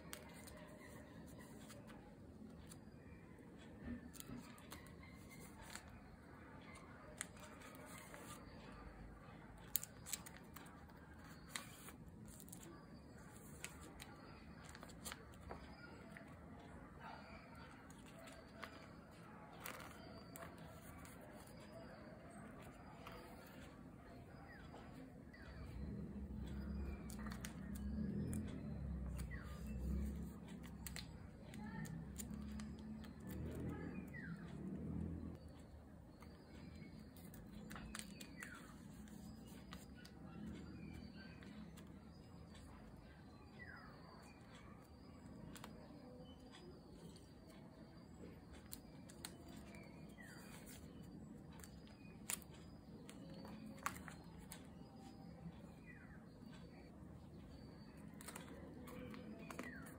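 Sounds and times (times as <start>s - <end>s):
faint bird chirps: 0.0s - 59.9s
soft plastic clicks: 0.0s - 59.9s
plastic sleeves clicking and rustling: 17.7s - 21.6s, 48.6s - 55.3s, 57.9s - 59.9s
plastic sleeves rustling: 58.2s - 59.9s.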